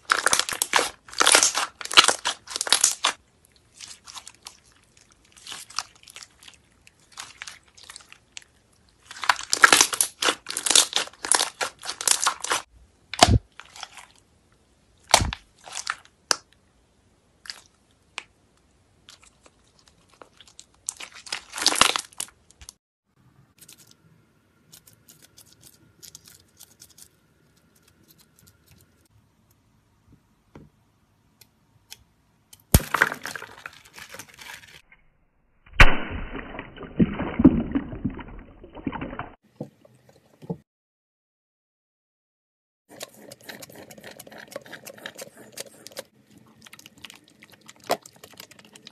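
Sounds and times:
slime squelching and crackling: 0:00.0 - 0:14.2, 0:19.0 - 0:22.8, 0:42.9 - 0:48.9.

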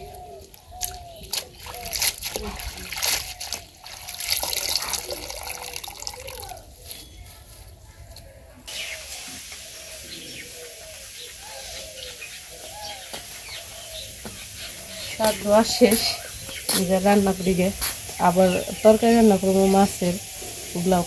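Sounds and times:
water sloshing in plastic bucket: 0:00.0 - 0:07.0
faint wavering calls: 0:00.0 - 0:17.6
outdoor background: 0:00.0 - 0:21.0.

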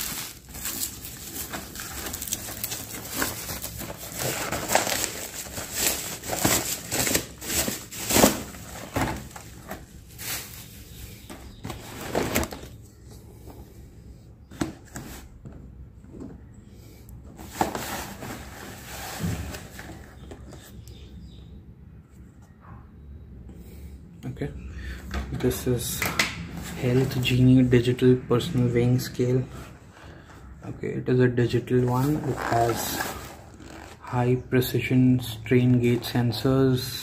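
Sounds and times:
bubble wrap crinkling and crackling: 0:00.0 - 0:12.7
cardboard box handling: 0:00.1 - 0:10.6.

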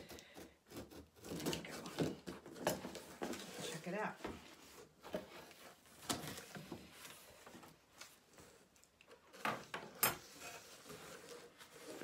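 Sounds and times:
cardboard box rustling and scraping: 0:00.8 - 0:08.3, 0:10.2 - 0:12.0.

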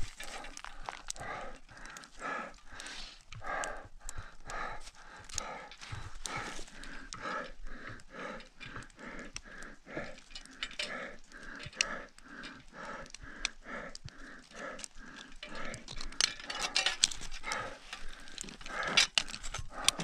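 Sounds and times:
climbing gear clicks: 0:00.0 - 0:20.0
person panting heavily: 0:00.0 - 0:20.0.

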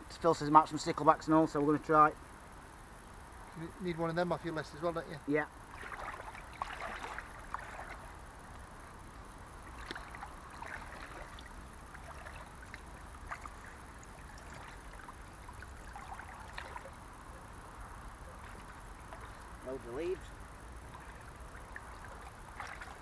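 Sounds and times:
stream water sloshing and splashing: 0:05.6 - 0:23.0
small splashes and ticks: 0:05.7 - 0:23.0.

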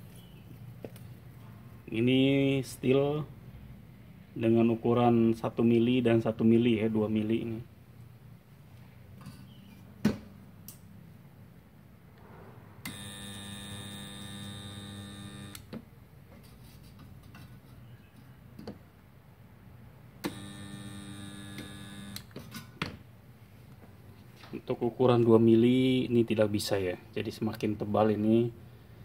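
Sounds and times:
spot welder buzzing: 0:12.8 - 0:15.7, 0:20.2 - 0:22.4.

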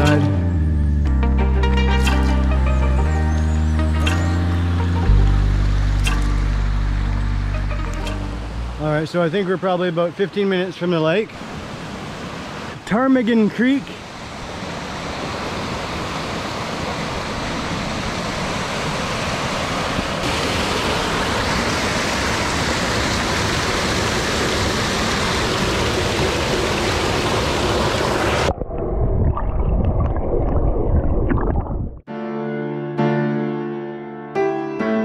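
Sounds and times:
soft piano music: 0:00.0 - 0:08.9, 0:32.1 - 0:35.0
creek rushing over boulders: 0:08.8 - 0:28.5
muffled underwater rumbling and bubbles: 0:27.8 - 0:32.0.

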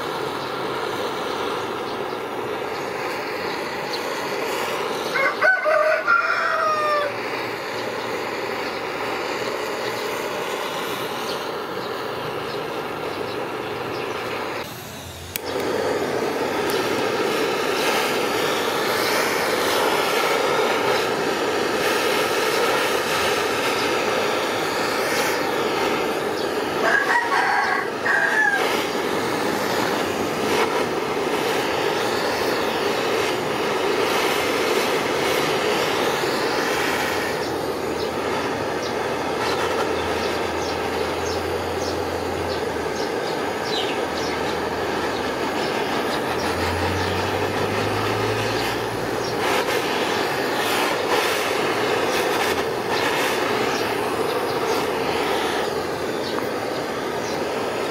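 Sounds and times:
butane torch hissing: 0:00.0 - 0:57.9
rooster crowing: 0:05.0 - 0:07.5, 0:25.7 - 0:30.8.

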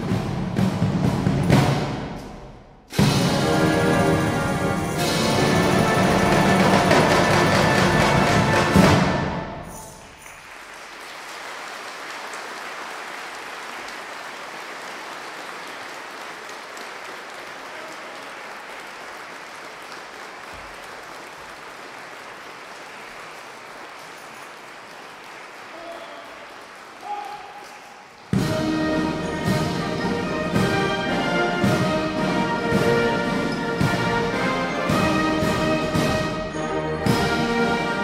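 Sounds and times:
brass band with drums: 0:00.0 - 0:09.8, 0:28.3 - 0:38.0
audience applauding: 0:10.0 - 0:28.4.

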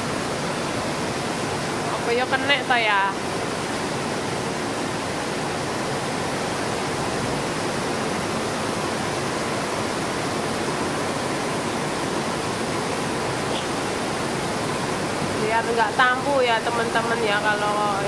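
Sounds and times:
heavy rain on a plastic roof: 0:00.0 - 0:18.0.

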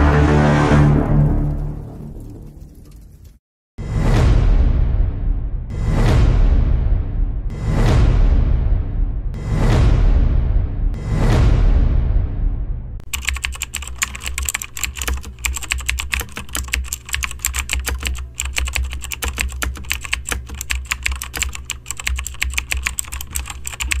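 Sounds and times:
keyboard typing clicks: 0:13.0 - 0:24.0.

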